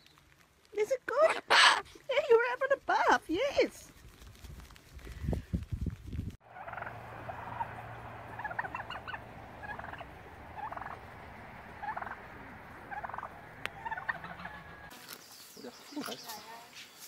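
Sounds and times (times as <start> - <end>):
turkey gobbling: 1.3 - 1.8, 6.4 - 15.0.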